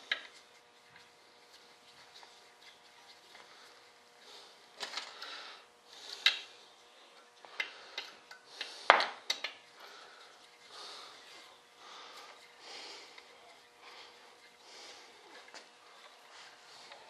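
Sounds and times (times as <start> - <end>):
soft rustling: 0.2 - 5.0.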